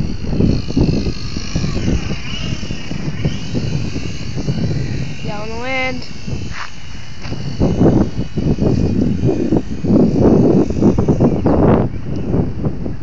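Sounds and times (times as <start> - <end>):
model plane propeller whine: 0.0 - 13.0
wind buffeting microphone: 0.0 - 13.0
person speaking: 5.2 - 6.2.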